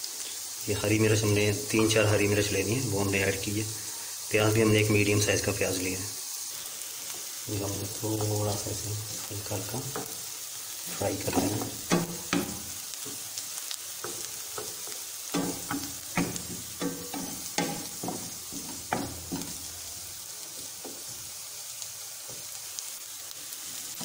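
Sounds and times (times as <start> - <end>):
onion sizzling in oil: 0.0 - 24.0
wooden spatula scraping pan: 11.2 - 13.2, 14.0 - 19.8.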